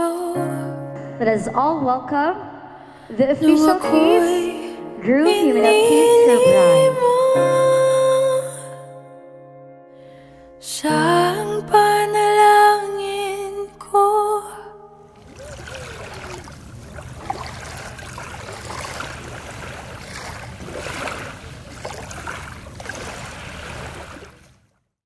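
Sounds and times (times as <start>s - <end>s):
small waves lapping on shore: 15.1s - 24.8s.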